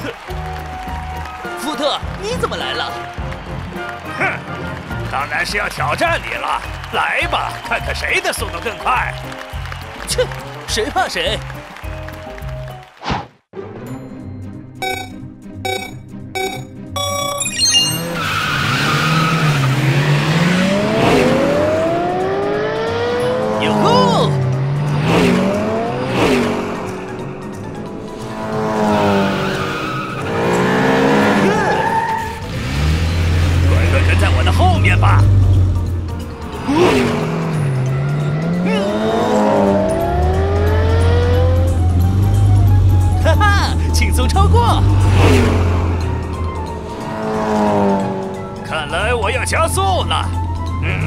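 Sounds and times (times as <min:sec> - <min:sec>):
countdown beeps: 0:14.8 - 0:18.2
cartoon engines revving: 0:17.6 - 0:51.0
tyres squealing: 0:29.4 - 0:35.6.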